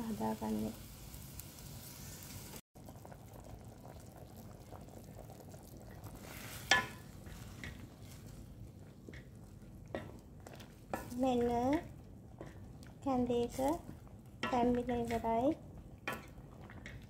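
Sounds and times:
soup boiling: 0.0s - 17.0s
spatula stirring soup: 5.8s - 17.0s.

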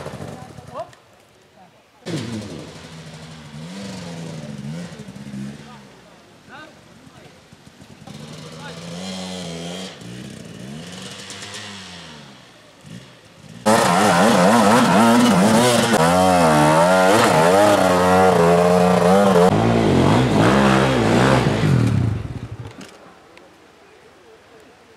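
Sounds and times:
dirt bike engine revving: 2.1s - 6.0s, 7.4s - 22.6s.

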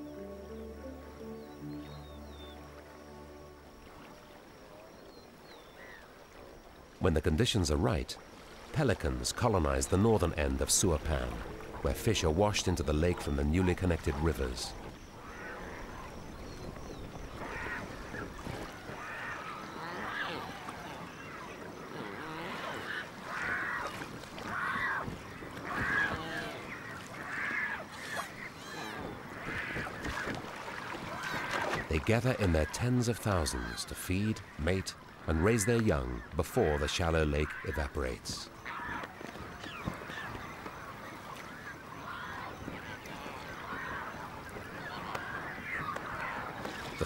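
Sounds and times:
faint high bird calls: 0.0s - 3.0s, 3.8s - 6.4s, 13.0s - 47.0s
chorus of water bird calls: 0.0s - 47.0s
goose-like honks: 25.7s - 26.7s.

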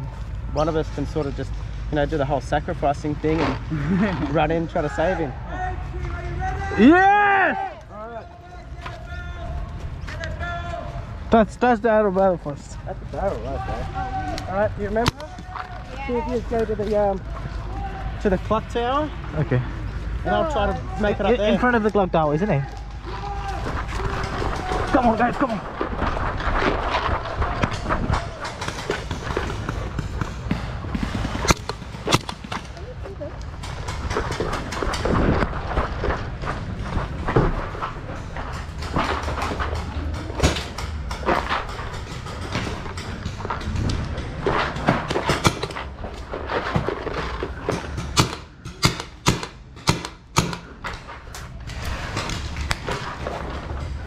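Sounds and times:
gear rustling and knocking: 22.7s - 50.0s
paintball markers firing: 27.5s - 32.8s, 47.6s - 50.9s.

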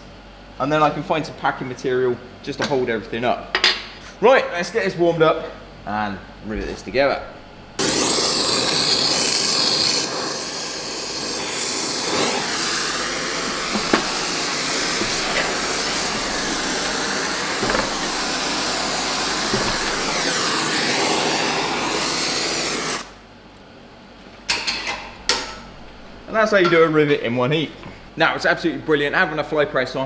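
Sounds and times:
gas torch flame hissing: 7.7s - 23.2s.

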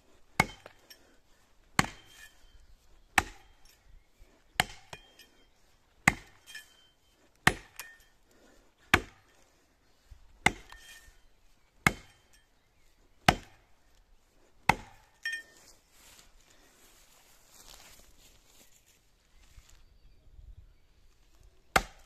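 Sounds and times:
axe chopping tree trunk: 0.3s - 1.0s, 1.6s - 2.4s, 3.1s - 3.8s, 4.5s - 5.3s, 6.0s - 6.8s, 7.4s - 8.0s, 8.8s - 9.4s, 10.4s - 11.2s, 11.8s - 12.4s, 13.2s - 13.7s, 14.6s - 15.4s, 21.7s - 22.0s.

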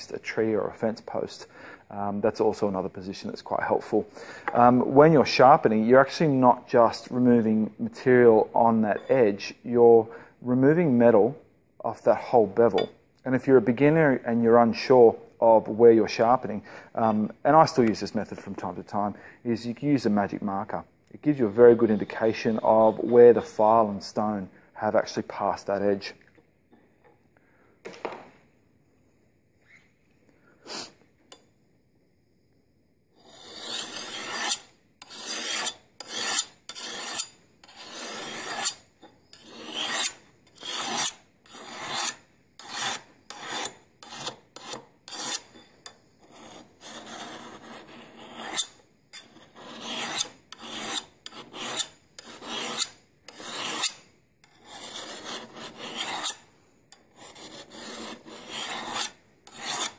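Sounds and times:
file rasping on steel blade: 21.4s - 23.2s, 33.2s - 59.9s.

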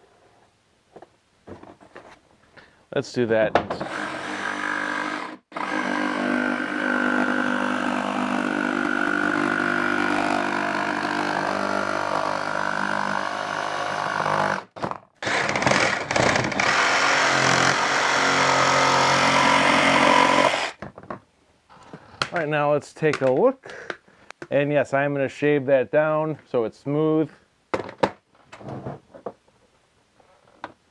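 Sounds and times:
jigsaw cutting plastic: 3.8s - 20.8s.

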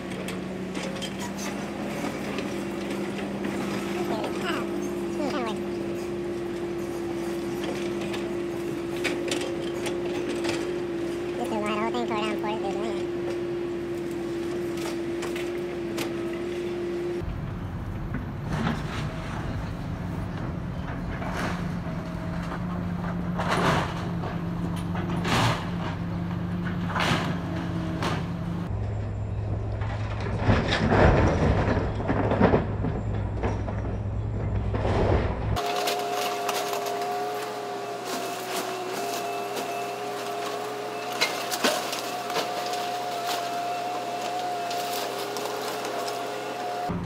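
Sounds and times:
diesel engine running: 0.0s - 47.0s
falling debris: 29.7s - 47.0s
timber splintering and crashing: 34.7s - 47.0s.

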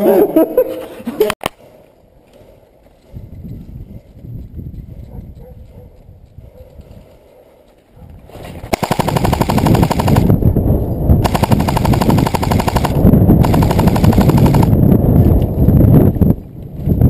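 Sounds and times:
airsoft rifle rapid firing: 8.7s - 10.3s, 11.2s - 14.8s.

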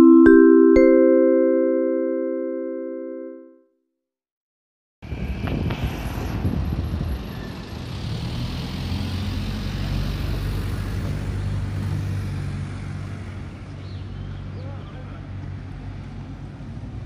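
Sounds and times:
road traffic noise: 5.0s - 17.0s.

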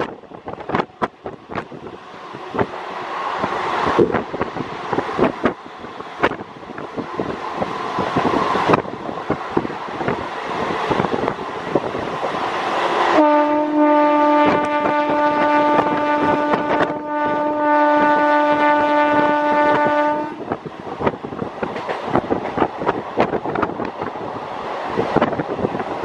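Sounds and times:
wind rushing: 0.0s - 26.0s
train horn blast: 13.1s - 20.6s
wheels clattering over rail joints: 21.0s - 24.1s.

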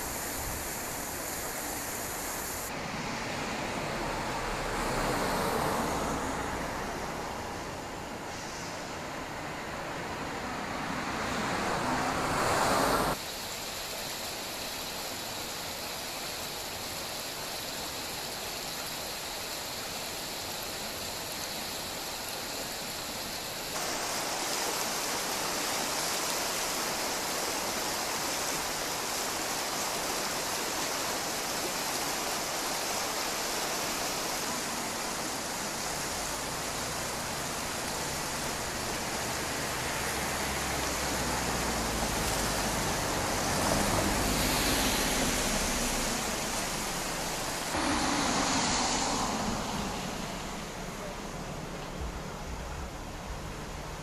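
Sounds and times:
car approaching: 9.4s - 13.2s, 35.5s - 54.0s
outdoor rushing noise: 33.0s - 54.0s.

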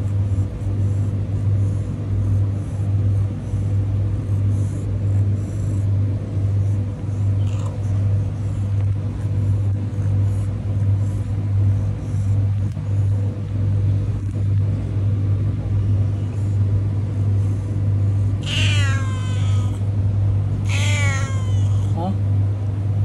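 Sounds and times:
steady low hum: 0.0s - 23.0s
cat meowing: 18.4s - 19.8s, 20.6s - 22.0s.

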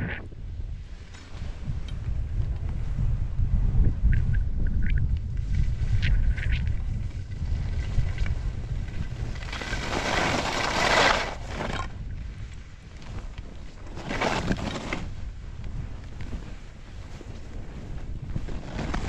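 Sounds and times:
wind buffeting the microphone: 0.0s - 19.0s
skis scraping across packed snow: 5.3s - 19.0s.

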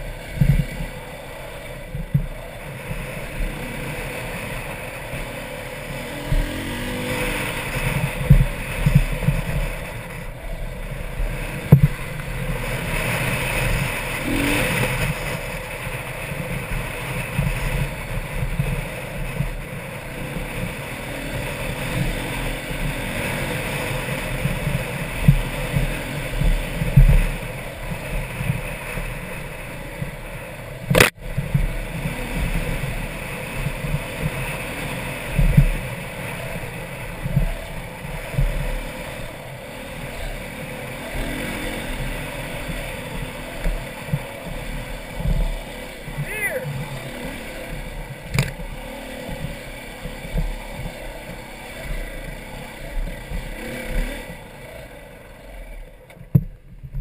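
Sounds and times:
wind buffeting microphone: 0.0s - 52.3s
dirt bike engine revving: 0.0s - 56.1s
sharp click: 30.9s - 31.2s, 48.3s - 48.6s.

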